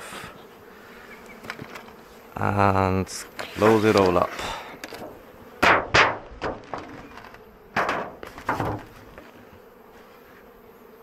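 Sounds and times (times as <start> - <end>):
honeybees humming: 0.0 - 11.0
knocks and thuds of wooden boxes: 4.8 - 9.4.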